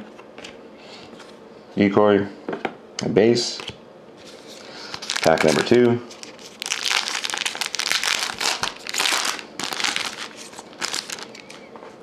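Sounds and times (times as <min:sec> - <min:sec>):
foil wrapper crinkling: 0:04.3 - 0:11.6.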